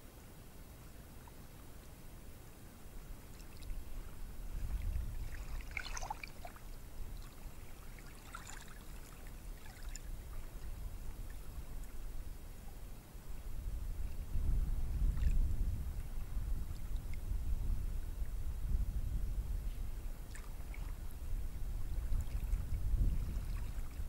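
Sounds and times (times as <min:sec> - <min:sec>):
wind rumble on microphone: 0:02.9 - 0:24.0.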